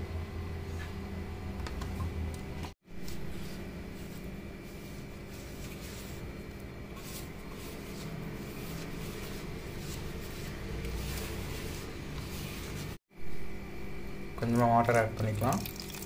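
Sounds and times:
steady background hum: 0.0 - 16.0
fingers kneading dry flour mix: 2.8 - 13.0.

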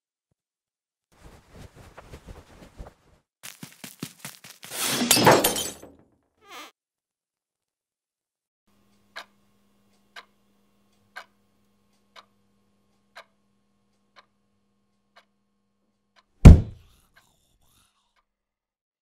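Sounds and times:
wall clock ticking: 8.9 - 10.3, 10.9 - 12.3, 13.1 - 13.4
loud deep thump: 16.5 - 16.8.

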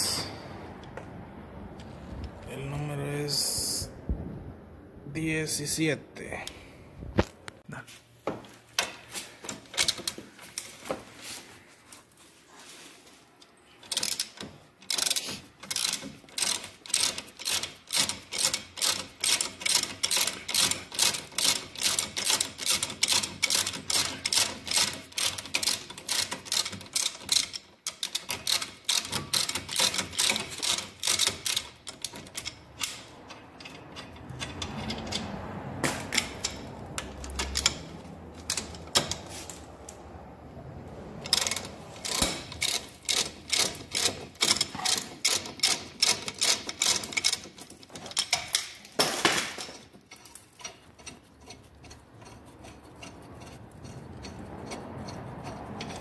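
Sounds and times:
ratchet wrench clicking: 13.8 - 39.2, 41.2 - 49.0, 49.6 - 56.0.

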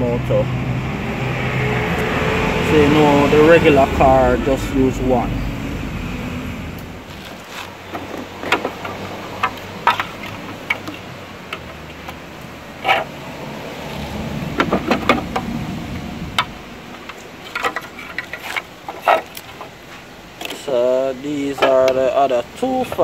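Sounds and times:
hard plastic parts clicking: 7.1 - 13.1, 16.3 - 19.8, 20.4 - 20.7.

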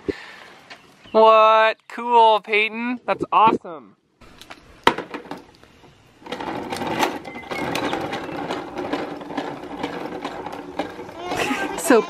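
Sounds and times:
toy lawn mower clattering on concrete: 4.8 - 12.0.

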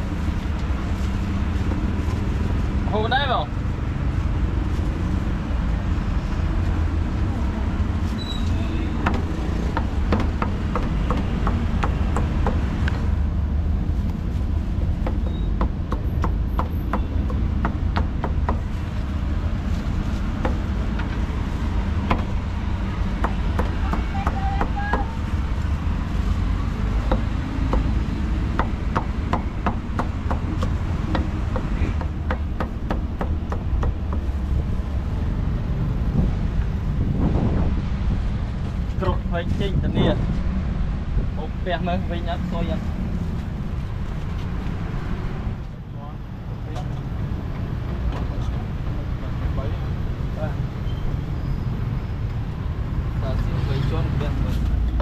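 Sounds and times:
cleaver chopping on wooden block: 9.0 - 12.7, 15.0 - 18.6, 27.0 - 34.3.

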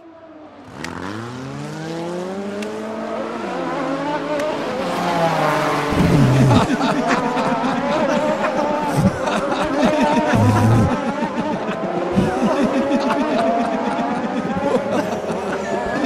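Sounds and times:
racing motorcycle engine accelerating: 0.6 - 6.8, 10.2 - 11.0.

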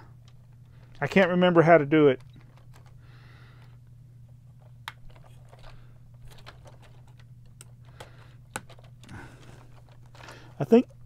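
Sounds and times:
low steady hum: 0.0 - 11.0
plastic parts clicking: 4.8 - 11.0.

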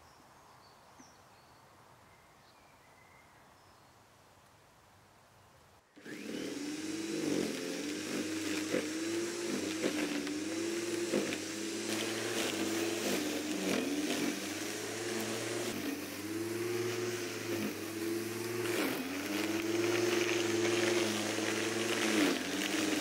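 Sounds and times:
electric lawnmower motor bogging down: 6.0 - 23.0.

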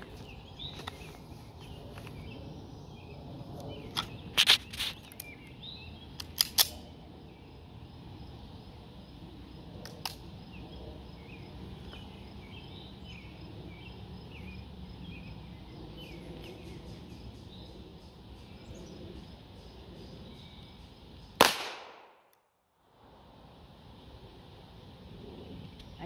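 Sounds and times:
small birds chirping: 0.0 - 6.4
loud pistol shot: 21.4 - 22.2.

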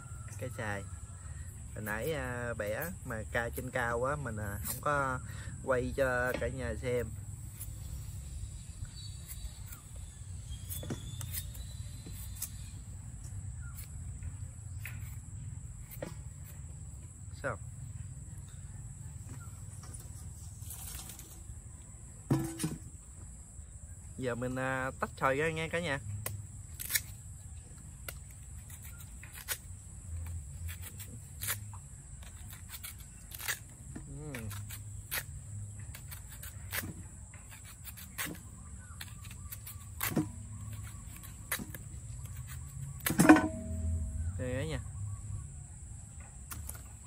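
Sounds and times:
insects droning: 0.0 - 47.0
knife scraping mango skin: 1.8 - 16.8, 24.4 - 44.4.

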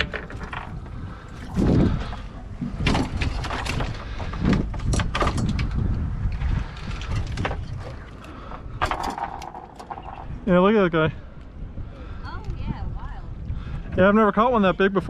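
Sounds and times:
knocks and clatters on boat deck: 0.0 - 10.4.

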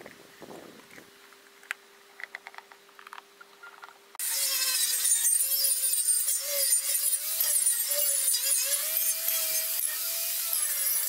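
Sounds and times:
angle grinder cutting steel: 4.2 - 11.0.

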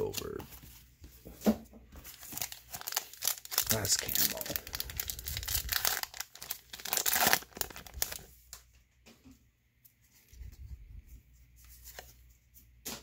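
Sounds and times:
cards rustling and clicking: 2.0 - 8.3
foil wrapper crinkling: 2.0 - 8.4.

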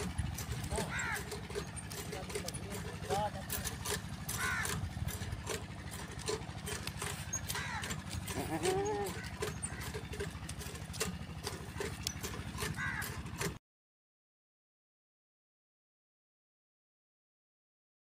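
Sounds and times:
goats bleating: 7.5 - 10.0.

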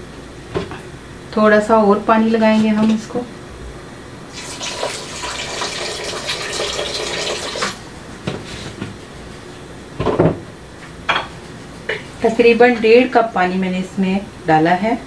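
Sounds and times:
water pouring into liquid: 4.3 - 7.8.

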